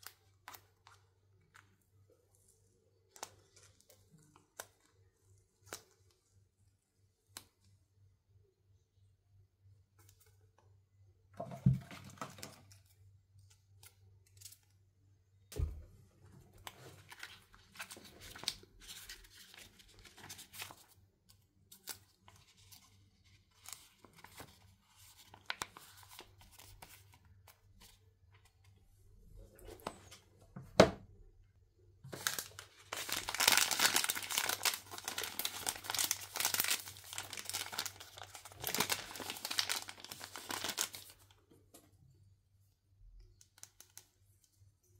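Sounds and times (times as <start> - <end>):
wrapper tearing and crinkling: 32.1 - 41.2.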